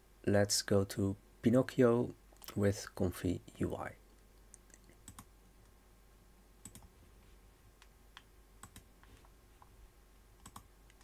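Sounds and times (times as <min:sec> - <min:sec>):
keyboard and mouse clicks: 0:04.5 - 0:05.3, 0:06.6 - 0:06.9, 0:07.8 - 0:09.2, 0:10.4 - 0:11.0.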